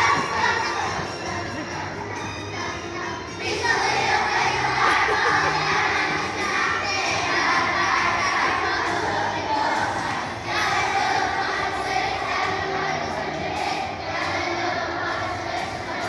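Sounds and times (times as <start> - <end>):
children singing loudly: 0.0 - 16.0.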